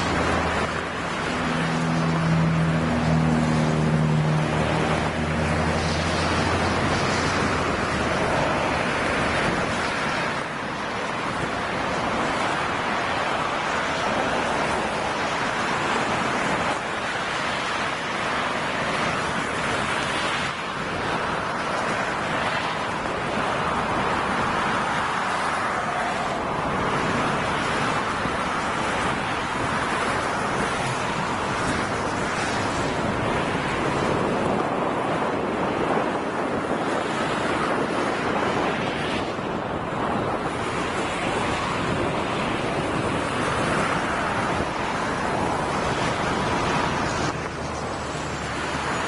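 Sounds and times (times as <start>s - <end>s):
low engine hum: 0.0s - 49.0s.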